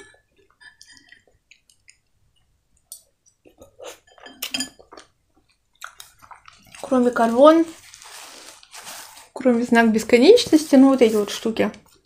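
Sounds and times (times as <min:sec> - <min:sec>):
soft chewing: 0:00.0 - 0:09.4
metal spoon clinking on glass bowl: 0:04.1 - 0:04.8.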